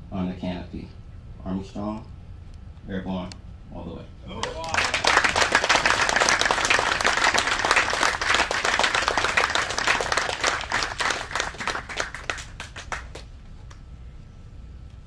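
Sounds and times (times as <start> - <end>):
audience applauding: 4.4 - 13.3.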